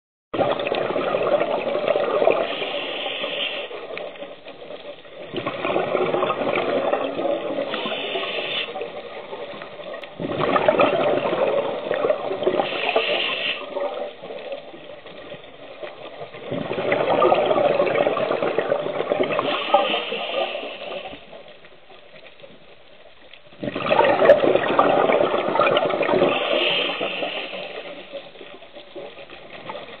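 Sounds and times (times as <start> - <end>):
underwater exhaled bubbles: 0.4 - 30.0
regulator breathing hiss: 2.4 - 3.8, 7.7 - 8.8, 12.6 - 13.7, 19.5 - 21.2, 26.4 - 28.2.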